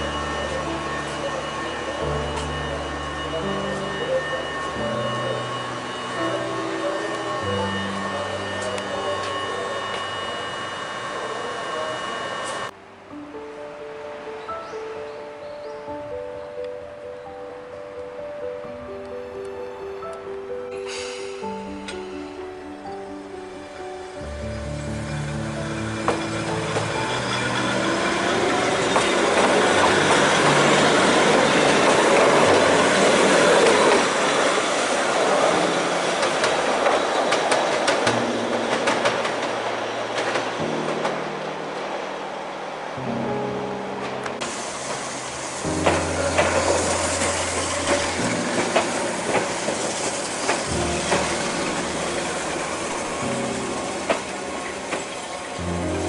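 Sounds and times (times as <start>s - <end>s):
train wheels on rails: 0.0s - 12.7s, 22.9s - 42.3s, 44.0s - 56.0s
wheels clicking over rail joints: 45.8s - 56.0s.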